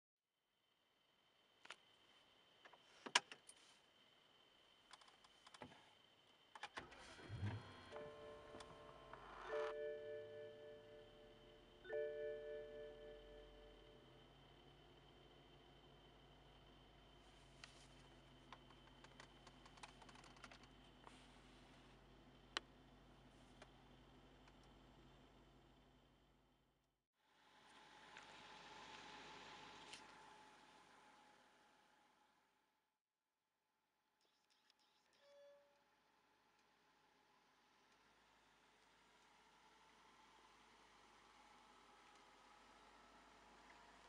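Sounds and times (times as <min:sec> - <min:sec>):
faint clicks and clunks in car: 0:18.4 - 0:21.2.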